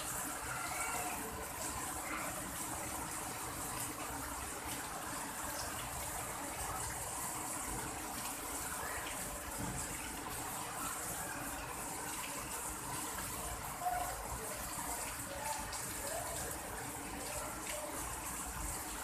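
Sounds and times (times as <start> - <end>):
heavy rain on leaves: 0.0 - 19.0.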